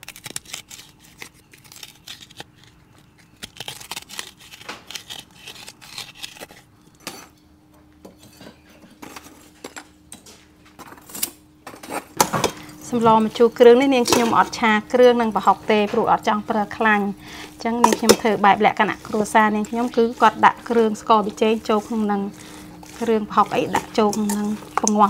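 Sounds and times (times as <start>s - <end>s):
faint steady hum: 5.2s - 25.0s
metal spoon scraping a pot: 17.4s - 25.0s.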